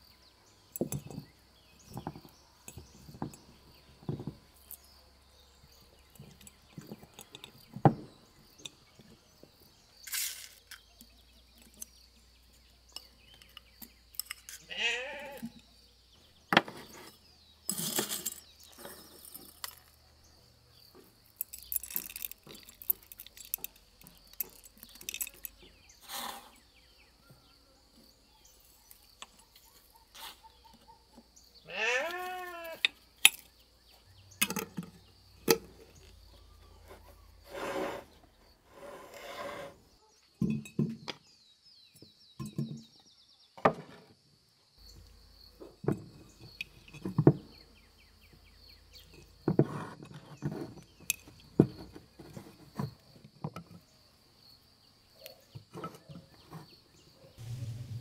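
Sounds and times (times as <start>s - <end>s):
glass jars and utensils clinking: 40.4s - 41.0s.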